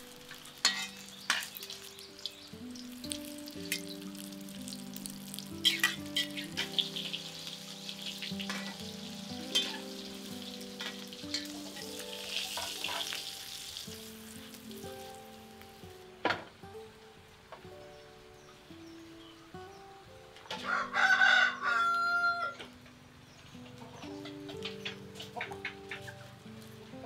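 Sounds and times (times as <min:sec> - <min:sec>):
omelette sizzling in oil: 0:00.0 - 0:15.9
metal spatulas scraping pan: 0:00.6 - 0:01.6.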